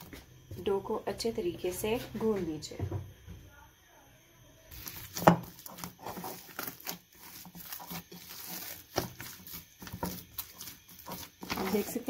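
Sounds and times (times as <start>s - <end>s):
dough squelching and slapping: 4.7s - 12.0s.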